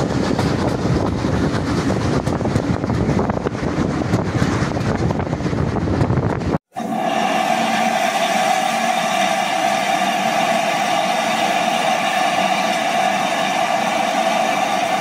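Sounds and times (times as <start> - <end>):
steam locomotive hissing: 6.7 - 15.0.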